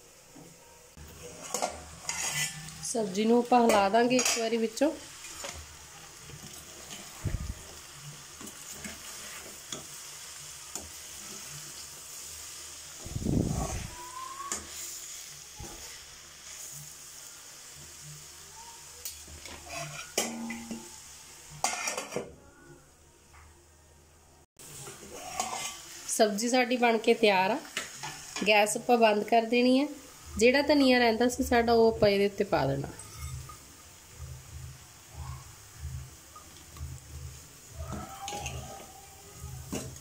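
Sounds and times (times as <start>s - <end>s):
vegetables sizzling in a pan: 0.0s - 22.4s, 24.6s - 40.0s
metal spatula scraping a pan: 1.0s - 7.2s, 8.0s - 12.6s, 19.3s - 22.3s, 24.8s - 26.0s, 32.8s - 33.7s, 37.8s - 39.0s.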